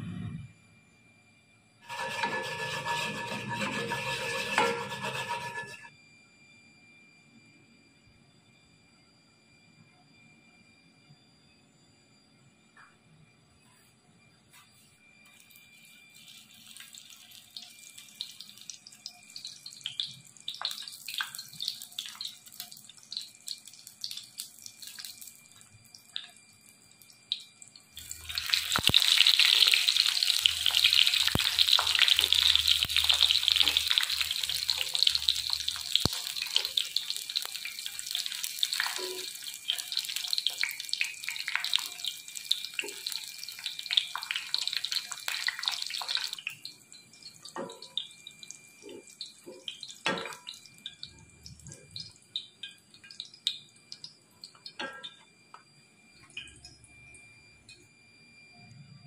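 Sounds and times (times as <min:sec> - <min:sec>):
tofu deep-frying sizzle: 0:01.8 - 0:05.3, 0:15.4 - 0:54.8
oil crackles and pops: 0:15.3 - 0:55.3.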